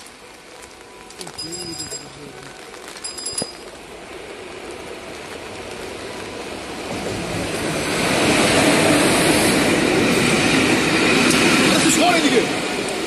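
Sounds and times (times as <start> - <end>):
steel wheels on rails: 0.0 - 13.0.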